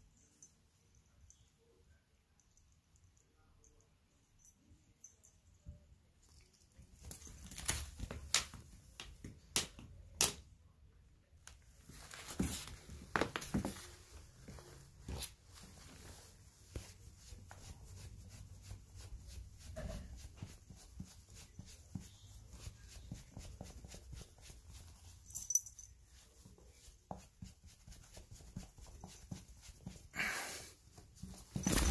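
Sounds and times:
brush drawn through fur: 13.7 - 31.9.

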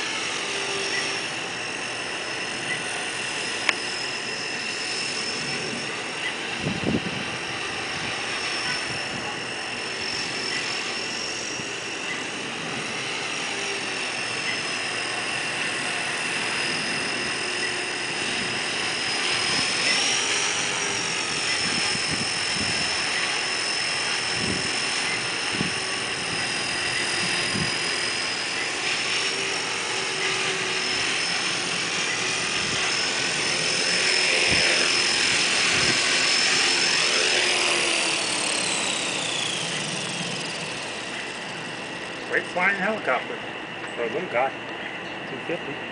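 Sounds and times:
rc helicopter motor whine: 0.0 - 45.9.

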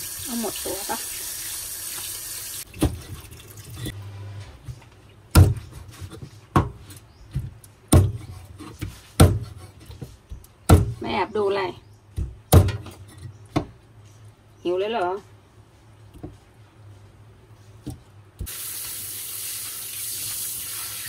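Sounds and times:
tap water running into sink: 0.0 - 3.9, 18.5 - 21.0
cleaver chopping on wooden board: 7.9 - 8.4, 9.2 - 9.5, 10.7 - 11.0.

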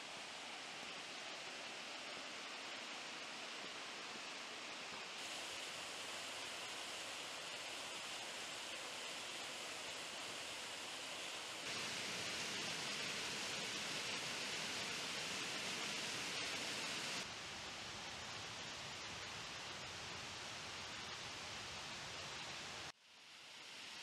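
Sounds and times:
waterfall rushing: 5.2 - 17.3.

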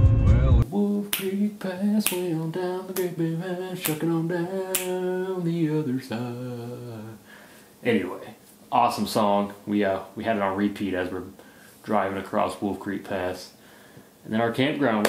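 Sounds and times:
person singing: 0.0 - 7.2
finger snaps: 1.1 - 1.4, 2.0 - 2.3, 4.7 - 5.0.

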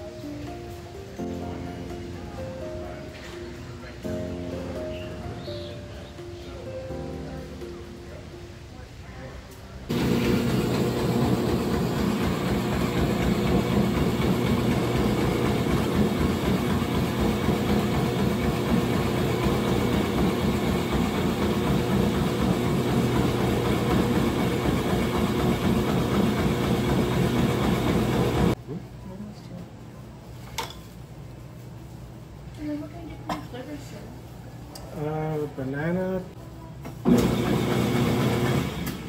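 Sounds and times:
electric ice shaving machine running: 9.9 - 28.6, 37.0 - 39.0.

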